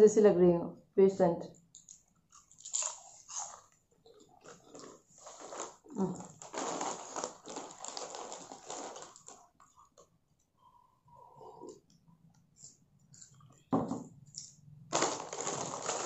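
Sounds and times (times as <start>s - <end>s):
crunchy chewing of chips: 1.7s - 10.0s
plastic packet crinkling: 4.5s - 9.7s, 14.9s - 16.0s.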